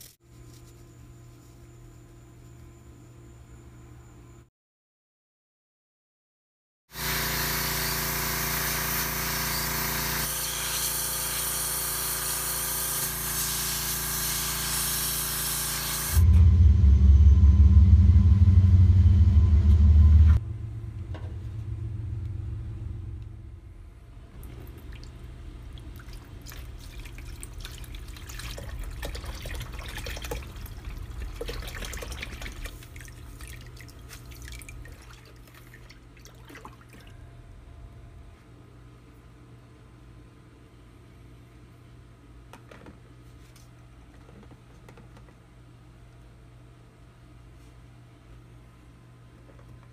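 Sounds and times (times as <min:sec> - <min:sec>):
loud low rumble: 0:16.2 - 0:26.0
water stirred in plastic tub: 0:24.4 - 0:37.1.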